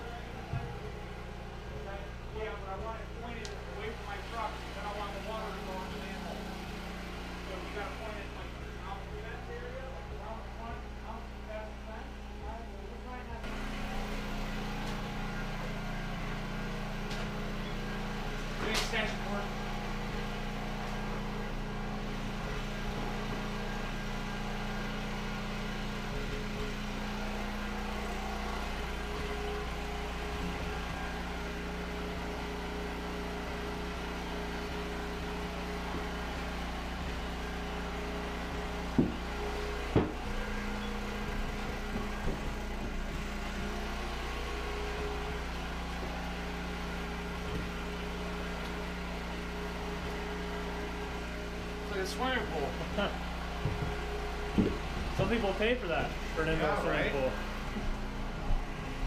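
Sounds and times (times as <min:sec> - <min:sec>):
small engine droning: 0:00.0 - 0:59.0
sharp knocks: 0:39.0 - 0:39.2, 0:39.9 - 0:40.2.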